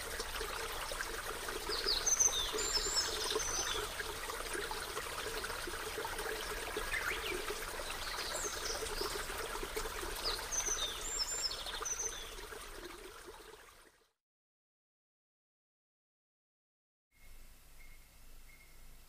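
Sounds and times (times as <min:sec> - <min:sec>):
running water: 0:00.0 - 0:14.0.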